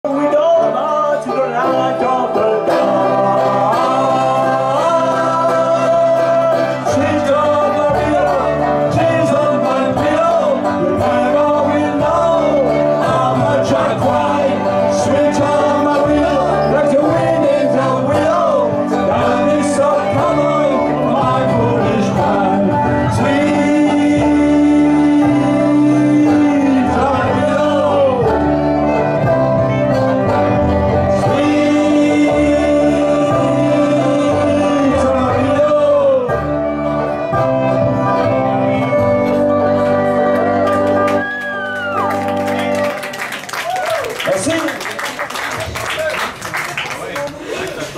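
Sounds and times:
man singing: 0:00.0 - 0:29.4, 0:31.0 - 0:39.0
bluegrass band playing: 0:00.0 - 0:47.9.

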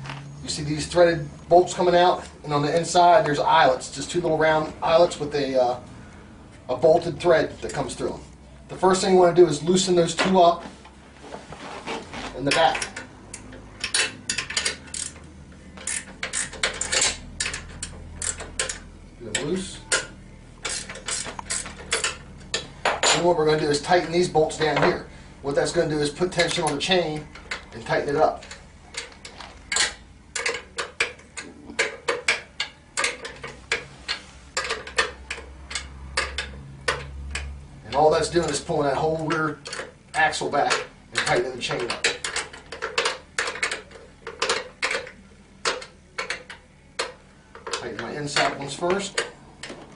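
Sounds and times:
wrench clicking on bolts: 0:12.5 - 0:24.2, 0:26.1 - 0:49.8.

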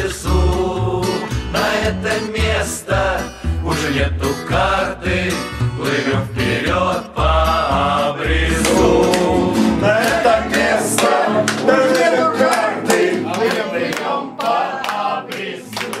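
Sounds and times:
acoustic guitar: 0:00.0 - 0:16.0
group singing: 0:00.0 - 0:16.0
hand clapping: 0:08.6 - 0:16.0.

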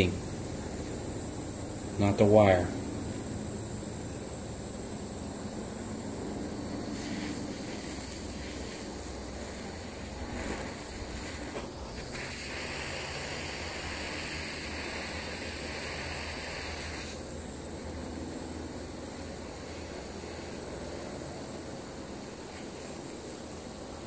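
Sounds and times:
gas torch hissing: 0:00.0 - 0:24.0
steady background hiss: 0:00.0 - 0:24.0
torch igniter clicks: 0:10.4 - 0:17.3.

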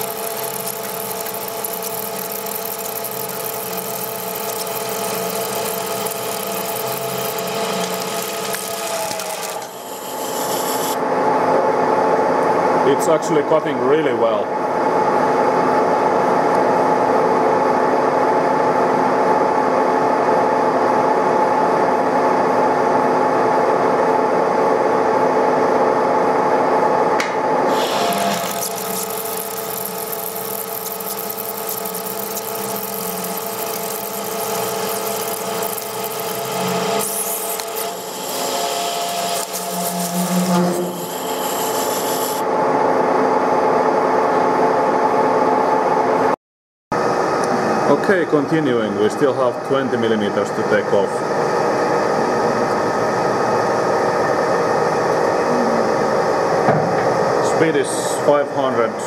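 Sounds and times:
tool cutting metal: 0:00.0 - 0:11.0, 0:27.7 - 0:42.4
lathe gear whine: 0:00.0 - 0:11.1, 0:27.7 - 0:42.8.

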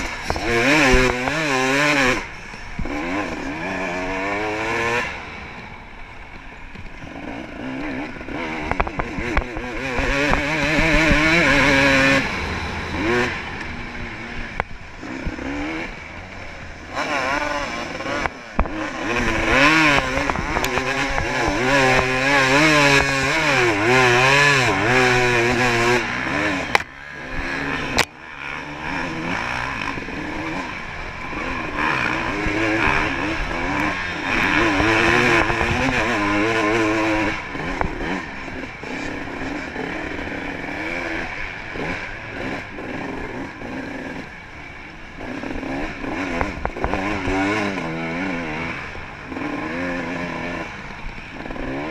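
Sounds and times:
dirt bike engine revving: 0:00.0 - 0:51.9.

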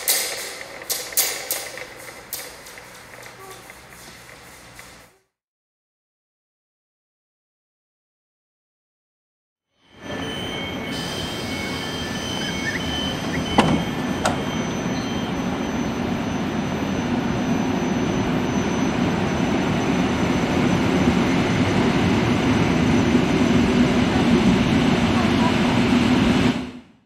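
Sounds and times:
train rumbling: 0:00.0 - 0:05.2, 0:09.9 - 0:26.9
train doors slamming shut: 0:11.6 - 0:14.8.

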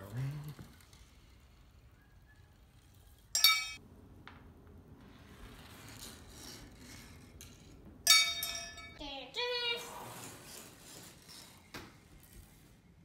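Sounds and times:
marble rolling on plastic track: 0:00.0 - 0:03.3, 0:05.2 - 0:07.8, 0:09.8 - 0:12.4
marble ringing clink: 0:03.3 - 0:03.8, 0:08.1 - 0:09.0.

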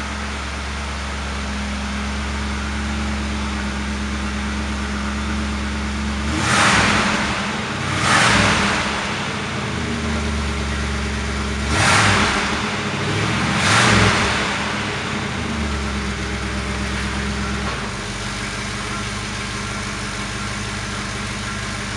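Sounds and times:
car engine idling and revving: 0:00.0 - 0:21.9.

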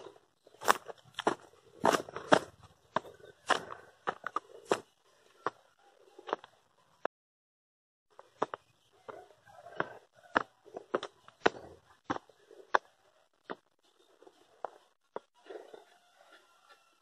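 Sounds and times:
footsteps crunching on dirt and stones: 0:00.0 - 0:05.6.

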